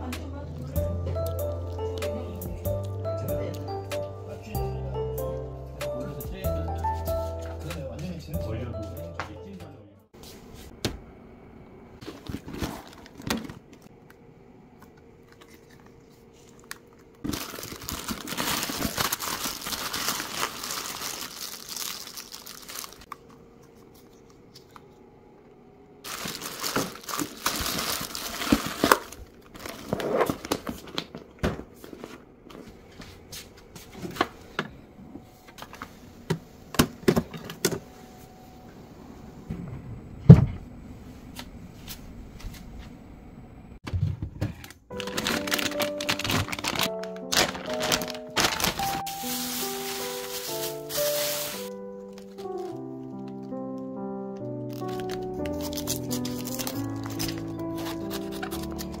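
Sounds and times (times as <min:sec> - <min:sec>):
packaging crinkling and rustling: 0:12.0 - 0:13.9, 0:15.3 - 0:24.8, 0:26.0 - 0:32.7, 0:44.6 - 0:53.8, 0:54.4 - 0:59.0.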